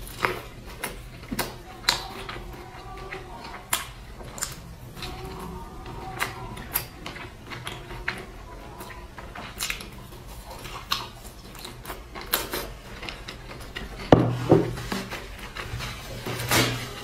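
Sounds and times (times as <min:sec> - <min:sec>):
close chewing with crunchy clicks: 0:00.0 - 0:14.2
loud knock: 0:14.1 - 0:14.8.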